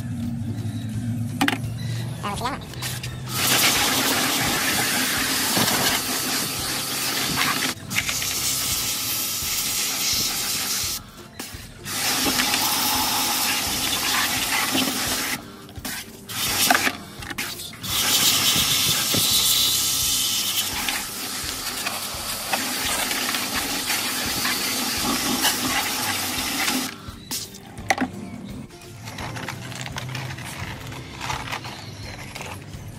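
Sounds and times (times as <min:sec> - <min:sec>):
pressurised water spray hissing: 0:03.3 - 0:11.0, 0:11.9 - 0:15.4, 0:17.5 - 0:27.6.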